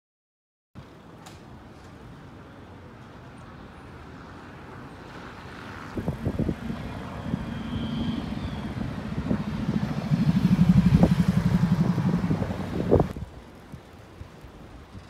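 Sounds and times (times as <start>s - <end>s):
engine running with pulsing note: 6.0s - 13.1s.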